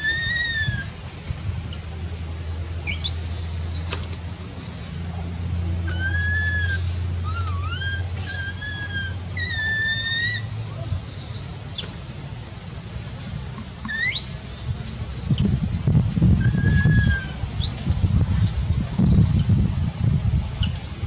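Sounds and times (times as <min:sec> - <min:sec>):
baby monkey high-pitched cries: 0:00.0 - 0:01.7, 0:05.9 - 0:11.9, 0:13.9 - 0:14.8, 0:16.4 - 0:19.3.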